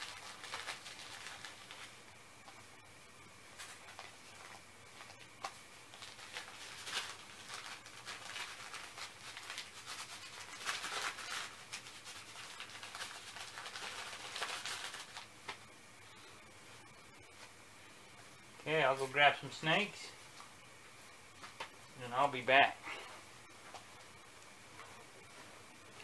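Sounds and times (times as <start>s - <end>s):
packet rustling and crinkling: 0.0s - 2.6s, 3.5s - 15.6s.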